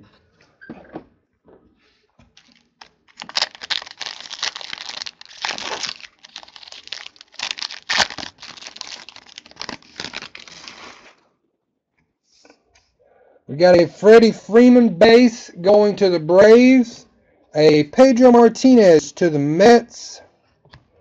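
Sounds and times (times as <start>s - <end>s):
wrapper crinkling and tearing: 2.4s - 11.2s.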